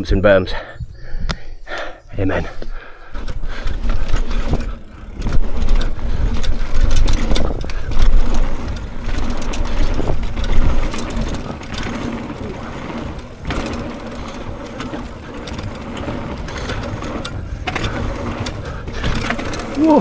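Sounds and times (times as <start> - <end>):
wind buffeting microphone: 0.7 - 20.0
bike tyres on dirt: 1.8 - 20.0
bike clattering over bumps: 2.6 - 20.0.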